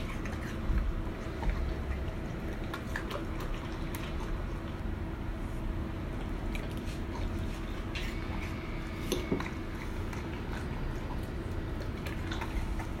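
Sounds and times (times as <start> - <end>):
dogs chewing and licking: 0.0 - 5.4, 6.0 - 13.0.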